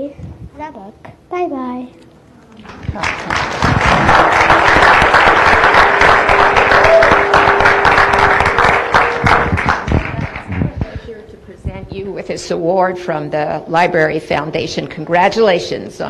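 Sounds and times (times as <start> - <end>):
audience applauding: 2.7 - 10.9.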